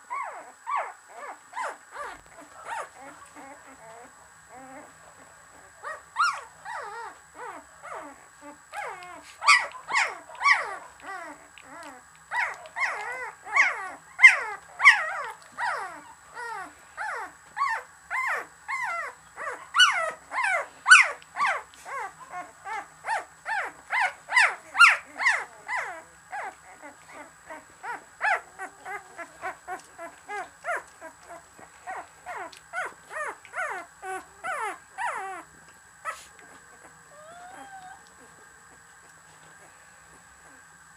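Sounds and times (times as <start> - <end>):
puppies whimpering and squeaking: 0.1 - 40.7.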